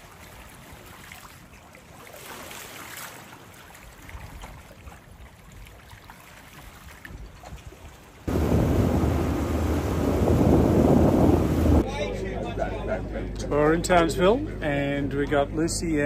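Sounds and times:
small waves lapping and splashing: 0.0 - 11.9.

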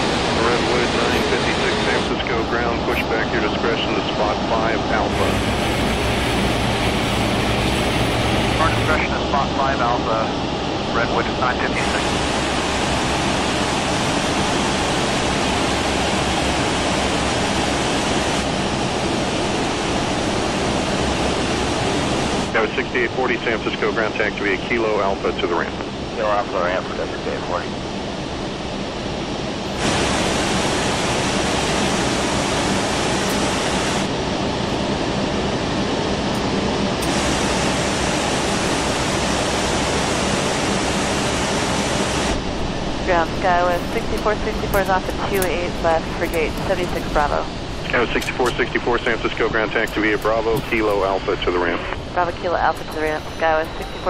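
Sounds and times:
faint low hum: 0.0 - 18.4, 36.2 - 54.0
jet engines rushing: 0.0 - 54.0.

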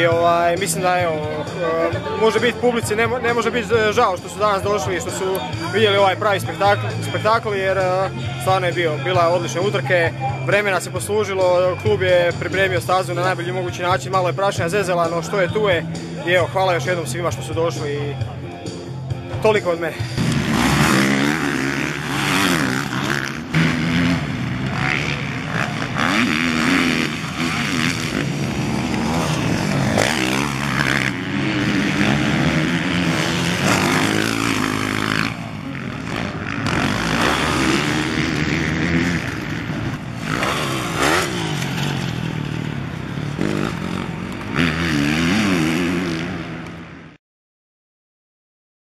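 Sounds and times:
motocross engines revving: 19.4 - 47.0.

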